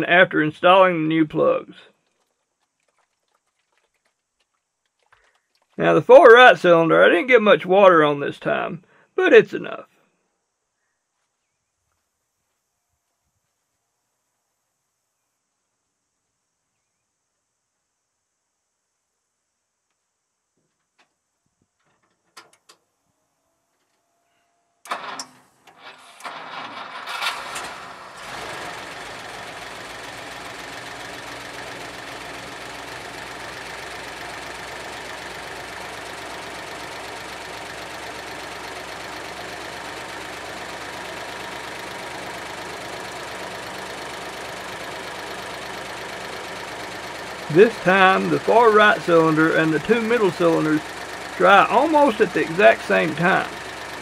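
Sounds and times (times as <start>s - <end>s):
faint clicks: 2.0s - 5.8s
engine cranking and idling: 24.9s - 54.0s.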